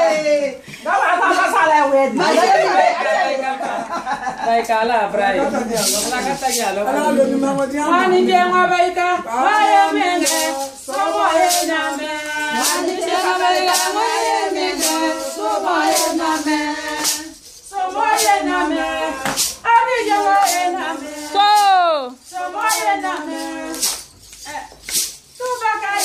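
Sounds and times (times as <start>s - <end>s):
women singing together: 0.0s - 26.0s
sharp claps: 23.7s - 25.2s.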